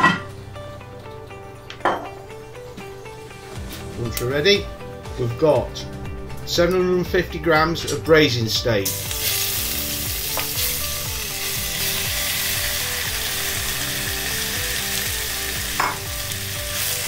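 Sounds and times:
beef sizzling in hot oil: 0:08.8 - 0:17.0.

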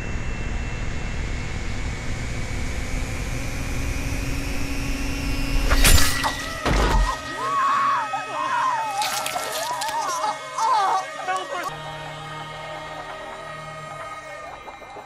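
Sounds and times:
high wavering cry: 0:06.9 - 0:15.0.

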